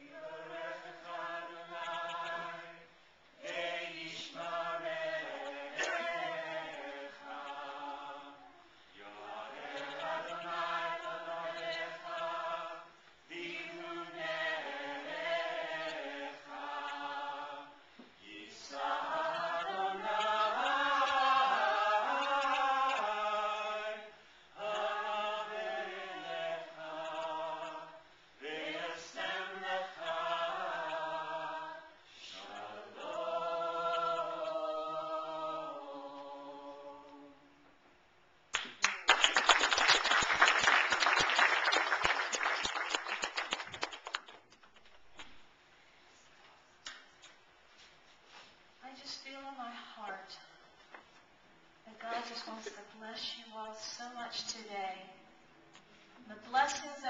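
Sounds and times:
voices singing in harmony: 0:00.0 - 0:37.6.

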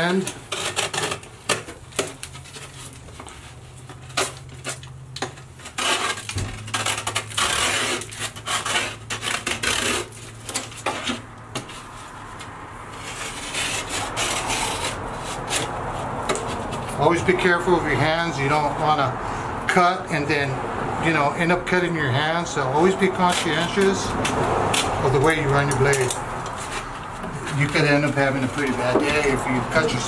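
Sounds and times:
knife scraping drywall edge: 0:00.0 - 0:03.0, 0:04.0 - 0:17.1, 0:22.8 - 0:30.0
drywall crumbling: 0:03.9 - 0:12.0.

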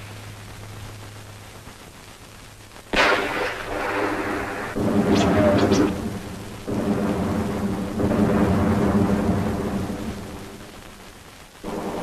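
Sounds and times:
artillery explosions rumbling: 0:02.9 - 0:12.0.

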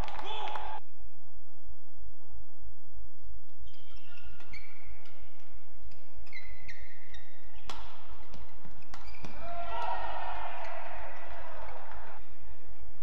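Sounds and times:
shoes squeaking on court: 0:03.6 - 0:09.4
racket hitting shuttlecock: 0:07.6 - 0:12.2.

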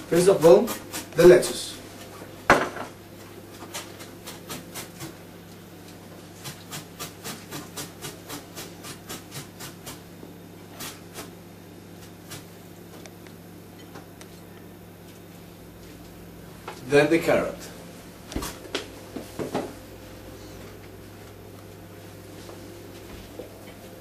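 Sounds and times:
low steady hum: 0:10.0 - 0:24.0.

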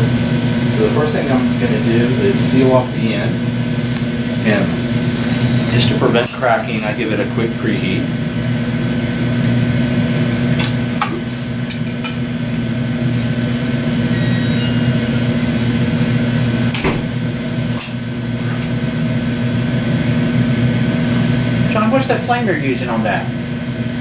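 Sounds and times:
gas burners humming: 0:00.0 - 0:24.0.

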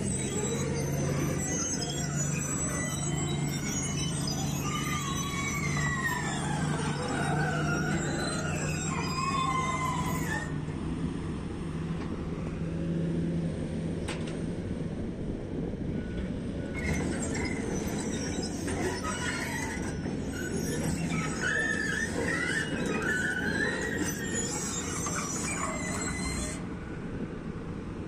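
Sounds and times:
steel tracks squealing: 0:00.0 - 0:11.4, 0:16.0 - 0:27.6
diesel engine under load: 0:00.0 - 0:28.0.

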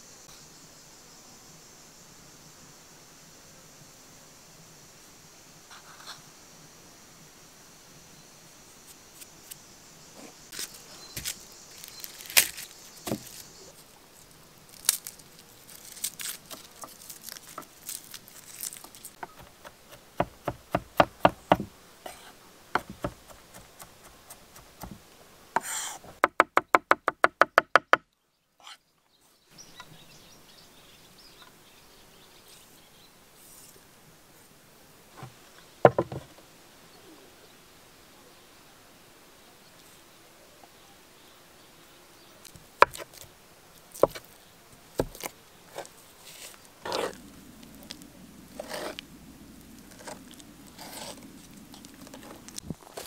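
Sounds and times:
knife chopping on wooden board: 0:13.0 - 0:13.3, 0:19.2 - 0:21.7, 0:22.8 - 0:25.0
taps and knocks: 0:19.2 - 0:21.7, 0:22.8 - 0:23.9, 0:35.2 - 0:36.3.

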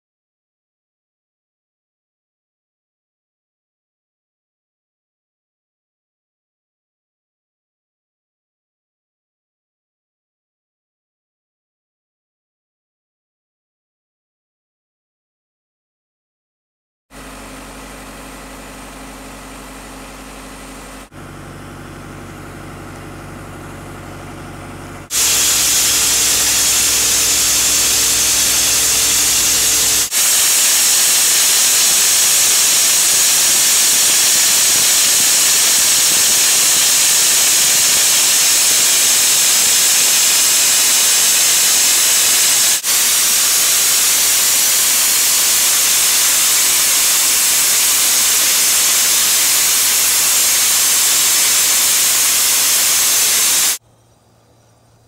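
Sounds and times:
compressor engine humming: 0:17.2 - 0:53.8
loud hiss of air blaster: 0:25.1 - 0:53.8.

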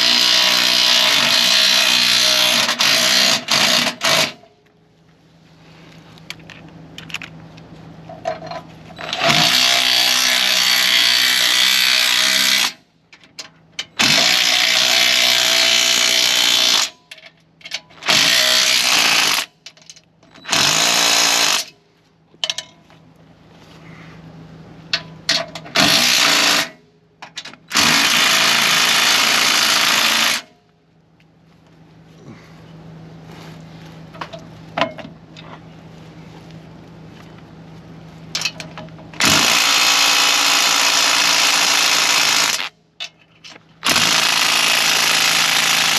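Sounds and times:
impact driver running bolts: 0:00.0 - 0:04.4, 0:08.4 - 0:12.8, 0:13.8 - 0:16.9, 0:18.0 - 0:19.5, 0:20.3 - 0:21.7, 0:25.3 - 0:30.5, 0:38.4 - 0:42.7, 0:43.8 - 0:45.9.

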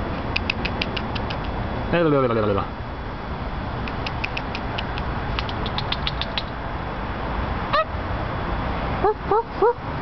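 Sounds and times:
quick high-pitched clicks: 0:00.3 - 0:01.5, 0:03.8 - 0:06.6.

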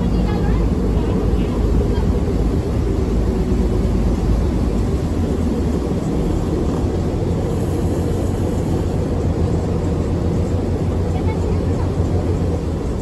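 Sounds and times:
ferry diesel engines droning: 0:00.0 - 0:13.0.

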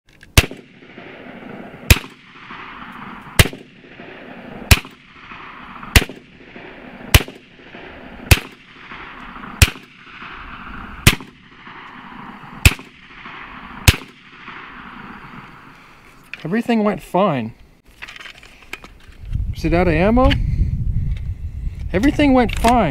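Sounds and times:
airgun shots: 0:00.3 - 0:15.8
steady hiss: 0:00.6 - 0:17.8.

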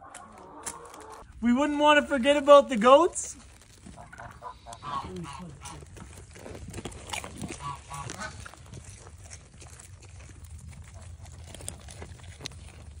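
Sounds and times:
goats crunching popcorn: 0:00.0 - 0:13.0
goat calls: 0:03.8 - 0:06.1, 0:07.4 - 0:08.6.

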